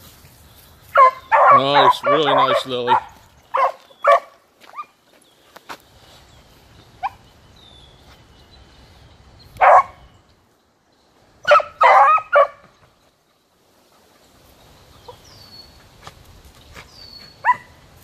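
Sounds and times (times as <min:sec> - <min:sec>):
dog barking: 0:00.9 - 0:04.9, 0:09.6 - 0:10.0, 0:11.4 - 0:12.6, 0:17.4 - 0:17.8
dog baying: 0:01.0 - 0:04.3.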